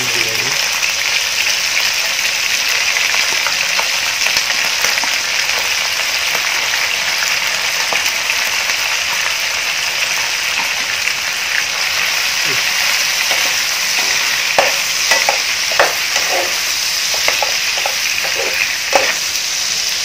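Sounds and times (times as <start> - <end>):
chicken sizzling in oil: 0.0 - 20.0.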